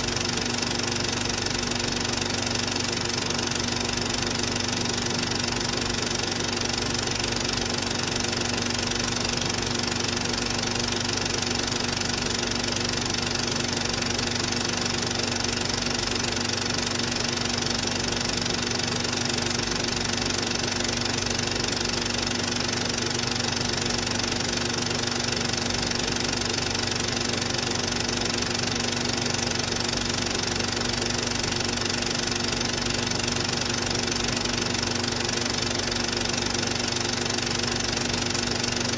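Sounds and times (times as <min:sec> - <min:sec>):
film projector whirring: 0:00.0 - 0:38.9.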